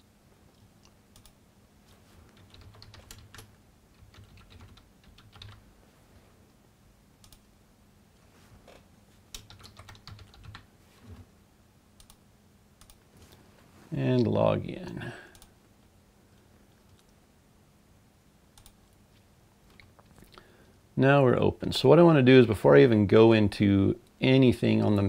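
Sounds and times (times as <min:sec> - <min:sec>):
faint keyboard typing: 0:00.5 - 0:05.7, 0:07.2 - 0:07.5, 0:08.6 - 0:11.3, 0:12.0 - 0:12.2, 0:12.8 - 0:13.4, 0:14.9 - 0:15.6, 0:16.4 - 0:17.2, 0:18.5 - 0:20.4.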